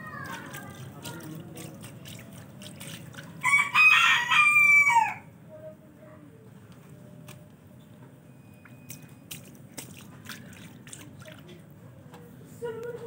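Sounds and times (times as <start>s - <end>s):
hands splashing in a puddle: 0.2s - 3.5s, 8.8s - 11.6s
rooster crowing: 3.4s - 5.3s.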